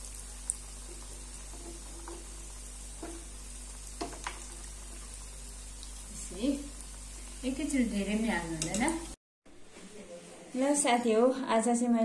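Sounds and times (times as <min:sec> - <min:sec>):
food sizzling in hot oil: 0:00.0 - 0:09.2
metal tongs clicking on pan: 0:08.5 - 0:09.1.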